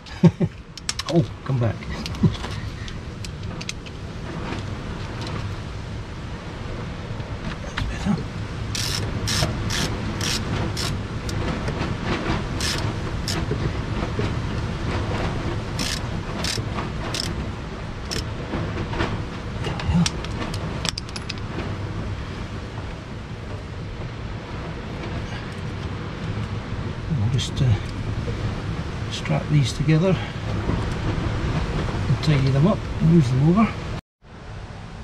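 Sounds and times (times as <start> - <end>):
low background rumble: 0.0 - 35.0
ratchet driver clicking: 8.7 - 11.4, 12.6 - 13.4, 15.8 - 17.3.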